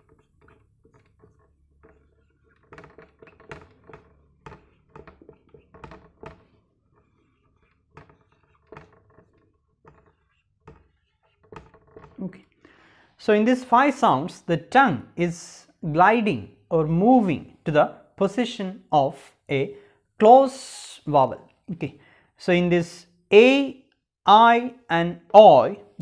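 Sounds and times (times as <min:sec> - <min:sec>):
marker pen on whiteboard: 0:00.0 - 0:12.5.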